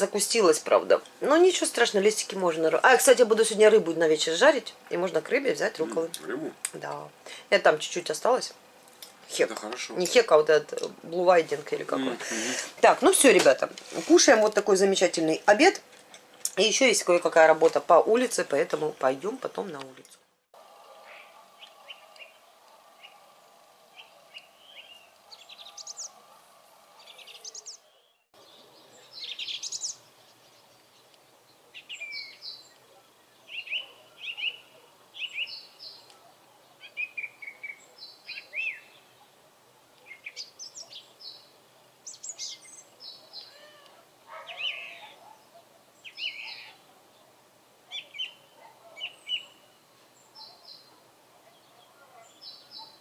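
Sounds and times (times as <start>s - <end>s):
faint steady hum: 0.0s - 19.9s, 20.6s - 27.7s
song thrush singing: 0.0s - 53.0s
small bird chirping softly: 27.0s - 47.3s, 47.9s - 53.0s.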